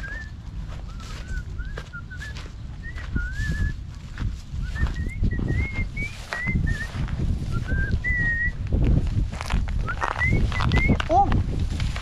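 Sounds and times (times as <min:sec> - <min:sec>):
footsteps on dirt path: 0:00.0 - 0:12.0
wind rumble on microphone: 0:00.0 - 0:12.0
microphone handling noise: 0:00.7 - 0:12.0.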